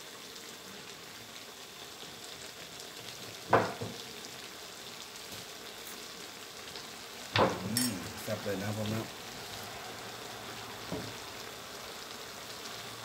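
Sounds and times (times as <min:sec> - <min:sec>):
stir-fry sizzling in a wok: 0:00.0 - 0:13.0.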